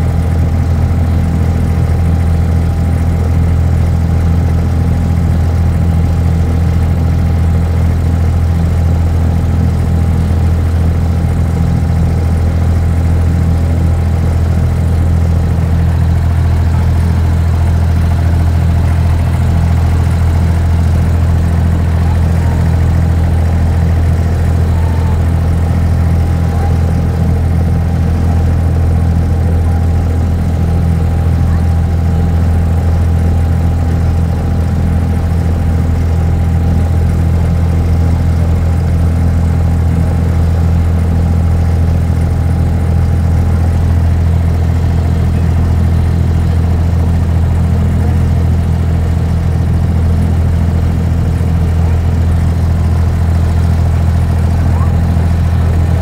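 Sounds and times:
diesel boat engine droning: 0.0s - 56.0s.

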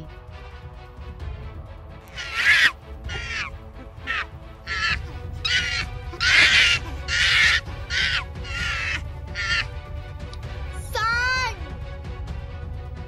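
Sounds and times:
background music: 0.0s - 13.0s
chimpanzee screaming: 2.1s - 9.7s.

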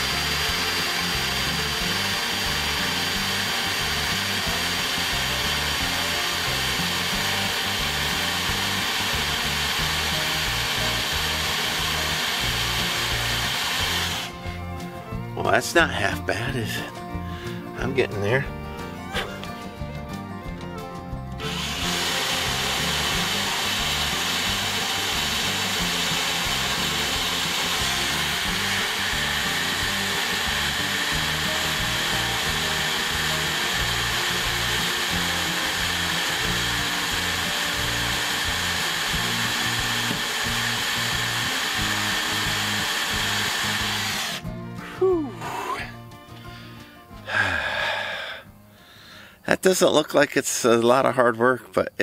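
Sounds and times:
drill grinding into steel: 0.0s - 14.7s, 21.4s - 44.5s.

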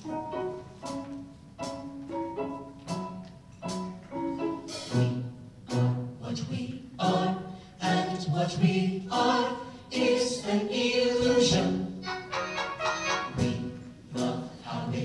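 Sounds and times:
a cappella group singing: 4.8s - 15.0s.

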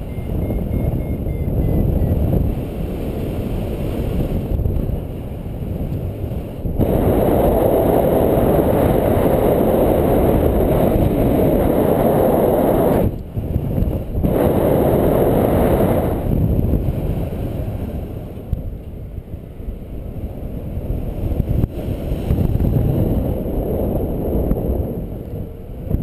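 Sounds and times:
wind on microphone: 0.0s - 26.0s.

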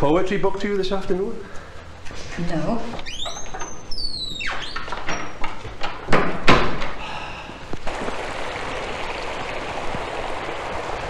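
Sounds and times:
stream running over rocks: 7.9s - 11.0s.

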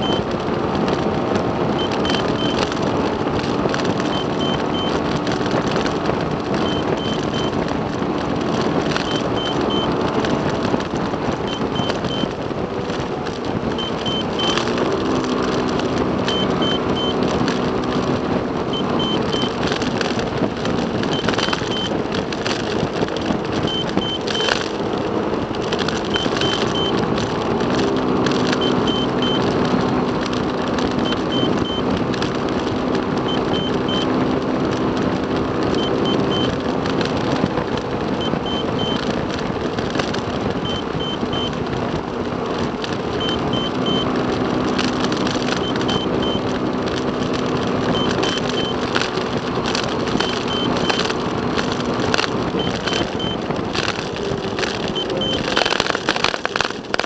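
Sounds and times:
high triple beep: 0.0s - 0.3s, 1.8s - 2.8s, 4.0s - 5.0s, 6.6s - 7.6s, 8.9s - 10.0s, 11.5s - 12.3s, 13.8s - 14.8s, 16.3s - 17.3s, 18.7s - 19.6s, 21.1s - 22.0s, 23.7s - 24.7s, 26.1s - 27.0s, 28.4s - 29.5s, 31.0s - 31.9s, 33.3s - 34.1s, 43.2s - 44.1s, 45.4s - 46.5s, 47.9s - 48.8s, 52.6s - 53.4s, 55.0s - 55.8s
road and engine noise in car: 0.0s - 57.0s.

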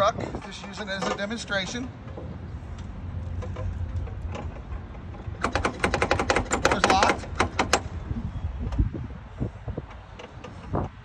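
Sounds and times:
rapid rattling clicks of lockout tool: 5.4s - 7.9s.

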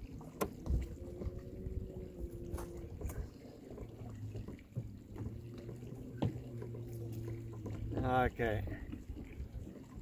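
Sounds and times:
boat motor running: 0.0s - 10.0s.

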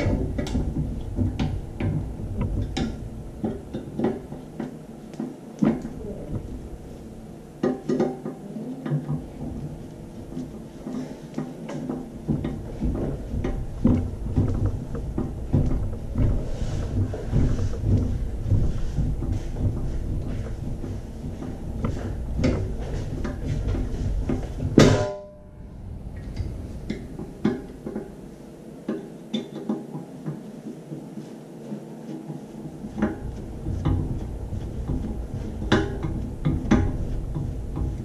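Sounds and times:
clicks and knocks of handling metal: 0.0s - 7.0s, 7.6s - 25.3s
low rumble: 12.1s - 28.5s.

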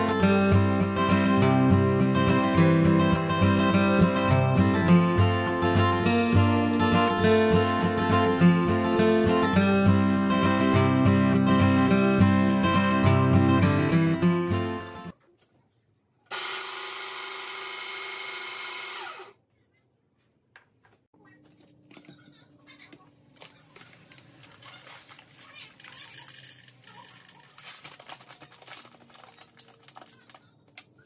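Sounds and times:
grinder motor whining: 16.3s - 19.4s
coffee bag rustling: 26.9s - 30.4s.

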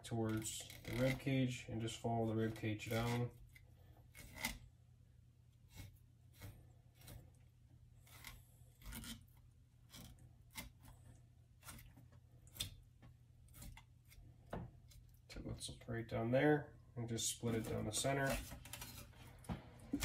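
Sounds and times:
knife scraping along fish ribs: 0.0s - 1.6s, 2.2s - 4.6s, 5.6s - 12.8s, 13.4s - 15.2s, 17.5s - 19.2s.

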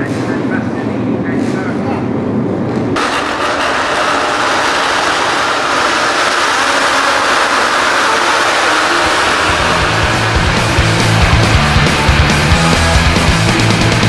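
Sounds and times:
low engine rumble: 0.0s - 14.0s
racing motorcycles at high revs: 3.0s - 13.4s.

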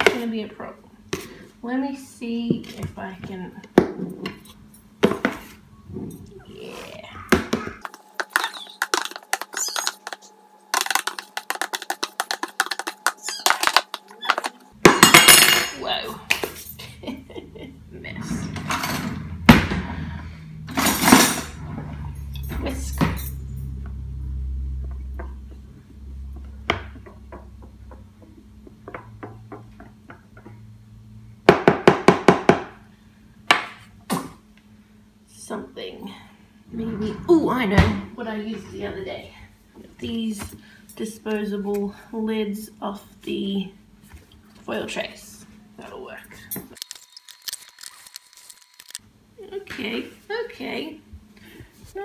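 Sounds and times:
whisk knocking against tub: 10.8s - 13.2s.

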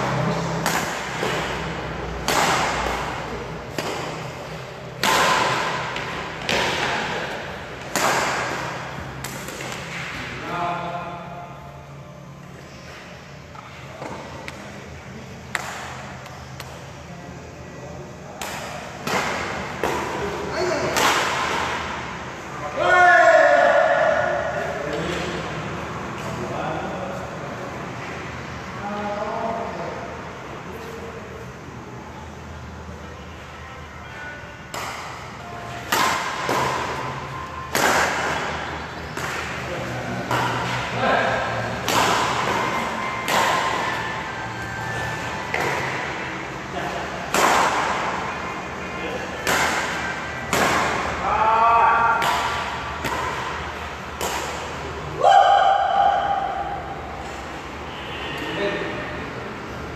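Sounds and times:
steady low hum: 0.0s - 22.8s
rackets hitting a shuttlecock: 0.2s - 10.6s, 15.4s - 16.9s, 18.3s - 22.2s, 34.7s - 48.3s, 49.1s - 55.0s.

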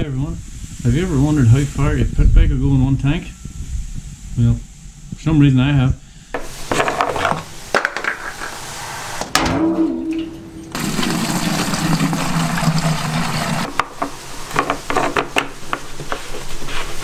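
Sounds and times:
petrol pouring into plastic jug: 10.8s - 14.9s.

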